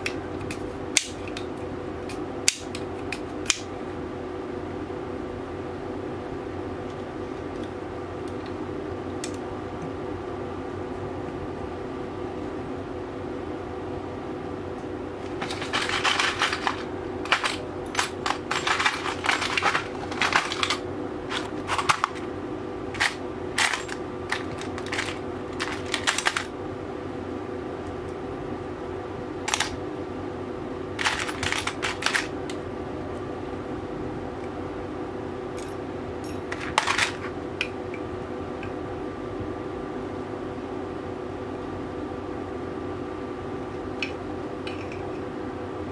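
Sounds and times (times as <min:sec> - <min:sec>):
background hum: 0:00.0 - 0:45.9
metal keys rattling in plastic box: 0:15.3 - 0:22.2, 0:23.0 - 0:26.5, 0:31.0 - 0:32.3, 0:36.3 - 0:37.3.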